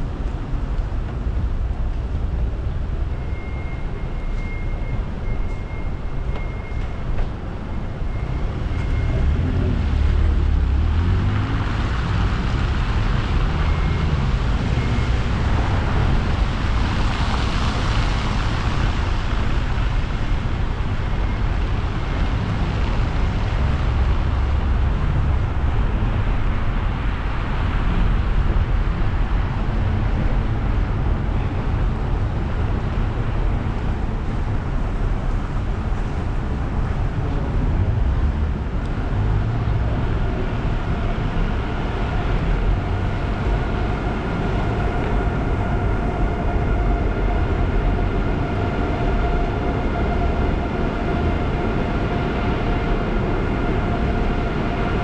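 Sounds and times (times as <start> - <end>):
car road noise rumble: 0.0 - 55.0.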